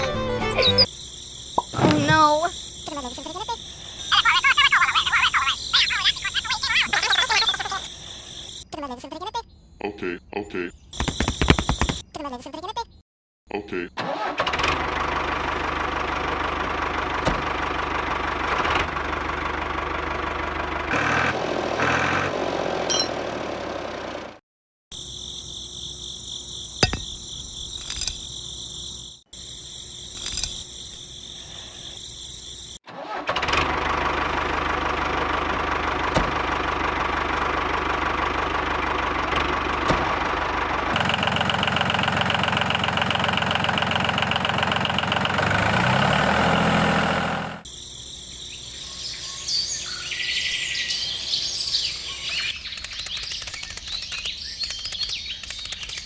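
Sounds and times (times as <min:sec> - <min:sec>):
small engine running: 0:14.2 - 0:24.4, 0:32.9 - 0:47.7.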